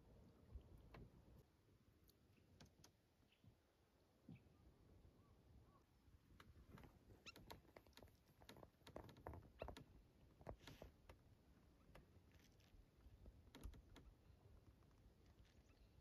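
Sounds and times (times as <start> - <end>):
faint small clicks and taps: 2.0 - 3.0, 6.4 - 11.2, 11.8 - 15.7.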